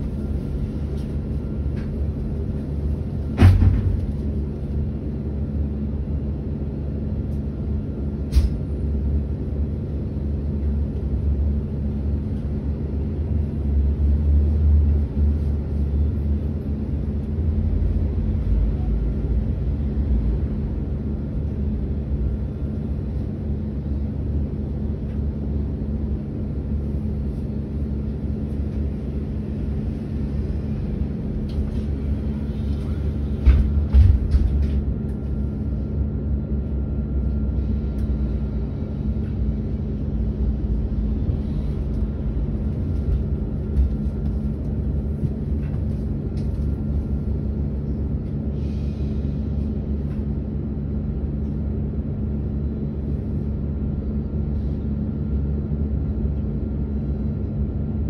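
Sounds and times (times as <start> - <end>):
low equipment hum and drone: 0.0 - 58.0.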